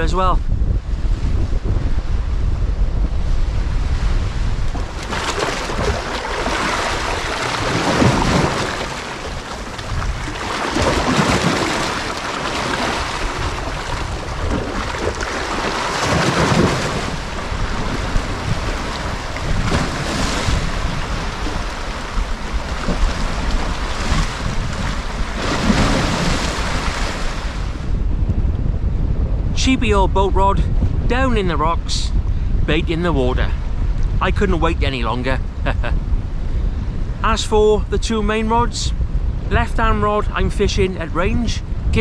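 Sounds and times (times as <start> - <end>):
wind buffeting microphone: 0.0 - 42.0
waves washing over rocky shore: 4.8 - 27.8.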